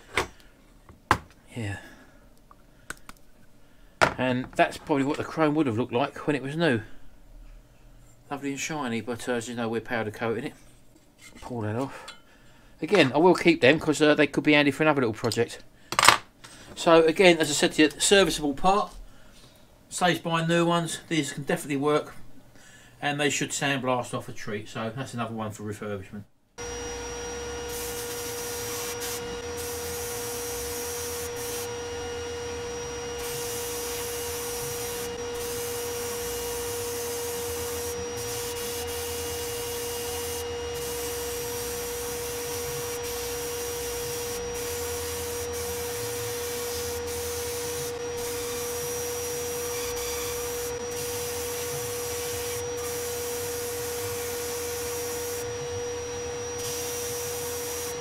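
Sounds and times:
sandblasting hiss: 26.6s - 58.0s
steady high whine: 26.6s - 58.0s.

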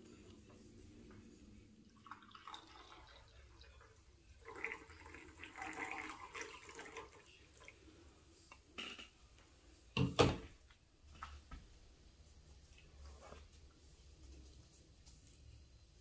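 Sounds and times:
faint liquid splashing: 1.8s - 8.6s.

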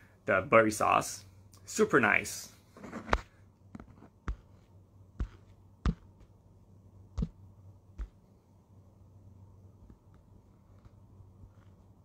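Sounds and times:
fingers tapping a phone: 5.2s - 6.3s.

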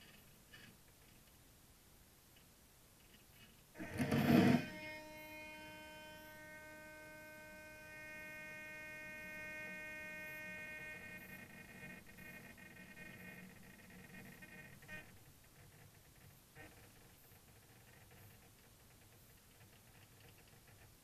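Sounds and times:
electrical hum with whining tones: 3.8s - 18.5s.

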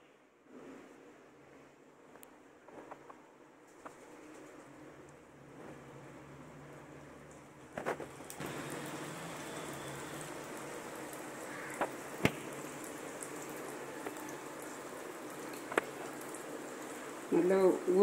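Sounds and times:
hot oil sizzling: 7.8s - 18.0s.

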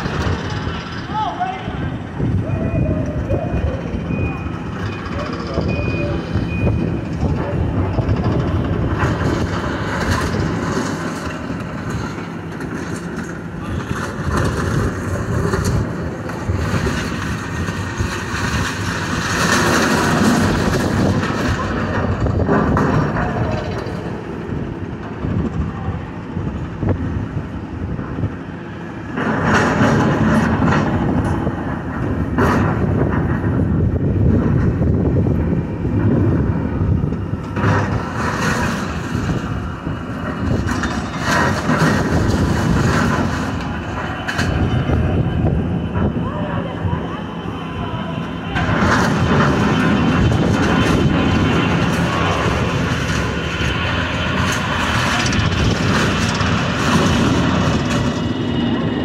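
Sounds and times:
excavator engine running: 0.0s - 59.0s
grapple crunching through rubble: 37.4s - 44.7s.

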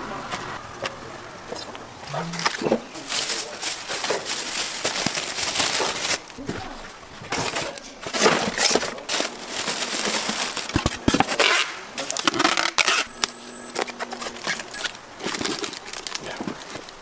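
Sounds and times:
styrofoam rubbing and creaking: 1.6s - 13.1s, 13.7s - 17.0s
packing tape pulled off roll: 2.3s - 6.4s, 7.3s - 13.1s, 13.8s - 17.0s.

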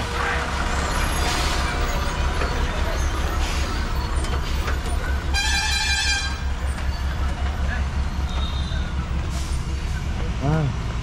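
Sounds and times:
lorry engine rumbling: 0.0s - 11.0s
vehicle horn: 5.3s - 6.4s.

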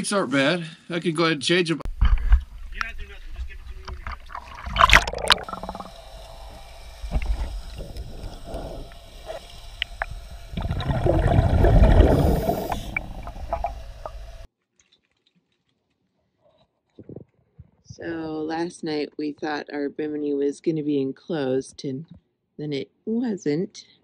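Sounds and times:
muffled underwater rumble: 1.9s - 14.4s
underwater bubbling: 2.4s - 14.5s
camera splashing into water: 3.9s - 6.0s.

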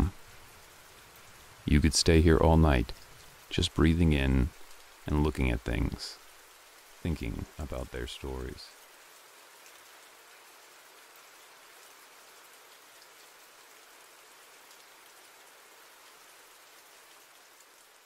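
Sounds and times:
faint rain hiss: 0.0s - 18.0s
raindrop ticks: 1.1s - 8.8s.

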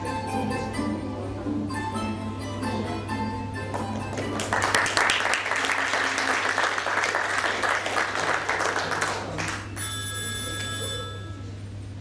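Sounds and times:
audience applause: 4.0s - 9.7s
telephone ringing: 9.7s - 11.5s.

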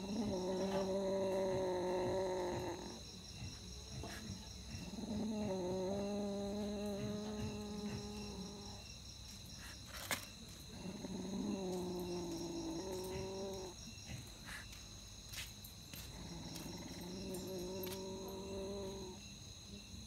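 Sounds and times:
cat growling: 0.0s - 3.0s, 4.8s - 8.8s, 10.7s - 13.8s, 16.1s - 19.2s
crickets chirping: 0.0s - 20.0s.

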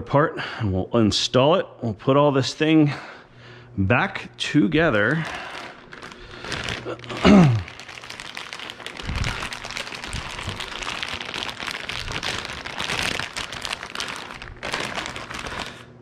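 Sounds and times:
plastic packaging crinkling: 4.8s - 16.0s.

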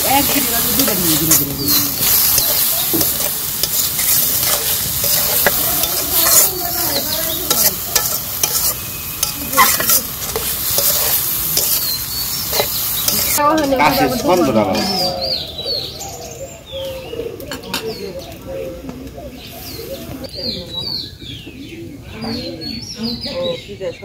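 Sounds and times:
metal spatula scraping a pan: 0.0s - 15.0s
cabbage sizzling in a wok: 0.0s - 15.4s.

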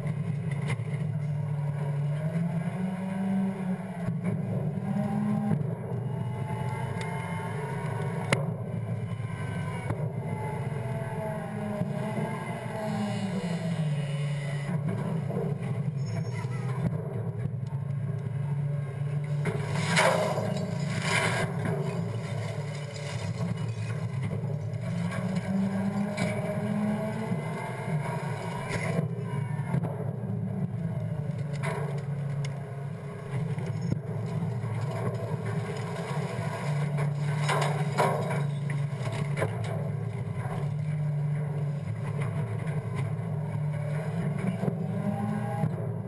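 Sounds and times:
knocks and clatters in metal hopper: 34.6s - 39.9s.

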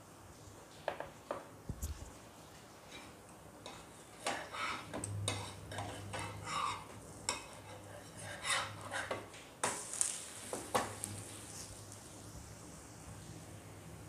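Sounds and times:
spatula scraping griddle pan: 2.8s - 11.6s.

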